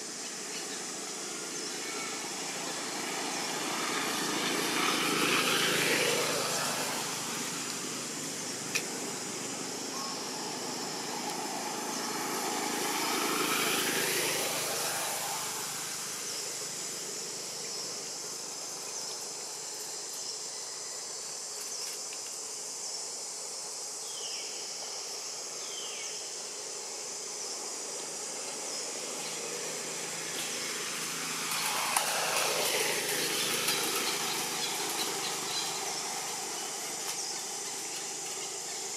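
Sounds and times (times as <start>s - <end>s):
insect hiss: 0.0s - 38.9s
vehicles passing: 0.4s - 19.8s, 27.9s - 38.9s.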